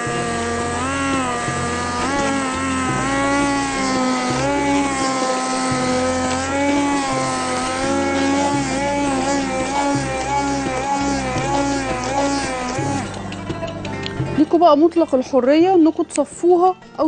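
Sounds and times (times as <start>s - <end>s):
hand blender motor whine: 0.0s - 13.4s.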